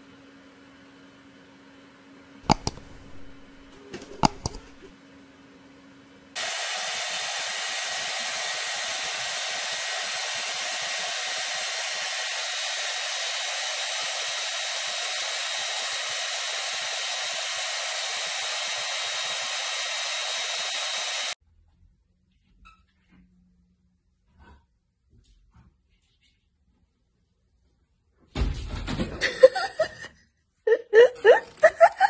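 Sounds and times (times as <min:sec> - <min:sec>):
hair dryer running: 0:02.5 - 0:04.9, 0:06.4 - 0:21.4.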